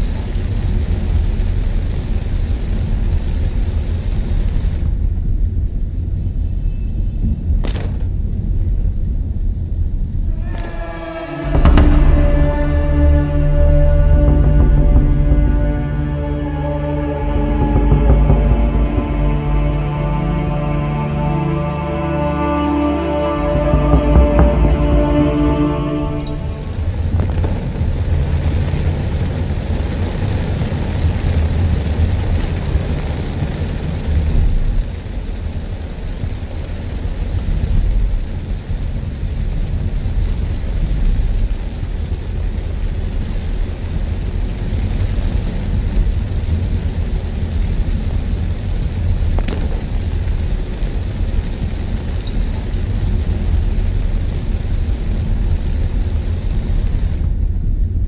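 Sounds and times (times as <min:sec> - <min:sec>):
road traffic rumble: 0:10.2 - 0:36.0
even hiss: 0:10.2 - 0:57.5.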